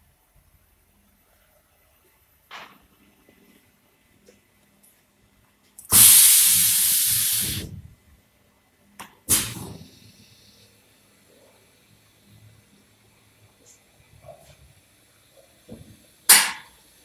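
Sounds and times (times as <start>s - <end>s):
spray gun hissing compressed air: 5.9s - 7.8s, 9.3s - 10.4s.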